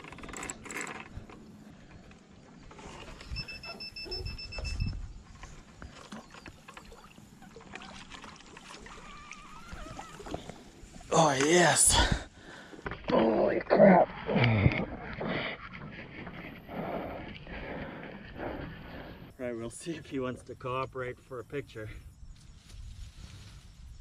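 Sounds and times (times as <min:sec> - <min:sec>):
fishing reel ticking: 0:00.0 - 0:01.4
wind noise on microphone: 0:02.9 - 0:05.6, 0:22.0 - 0:24.0.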